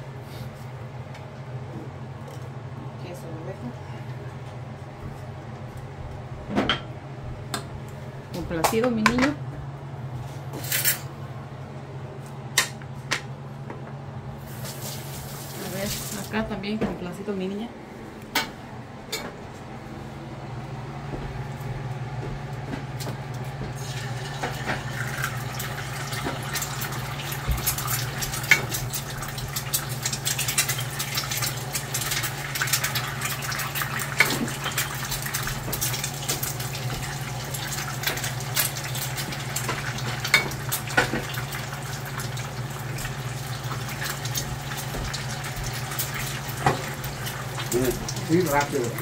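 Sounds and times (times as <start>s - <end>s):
eggs sizzling in hot oil: 14.4s - 16.4s, 23.8s - 49.0s.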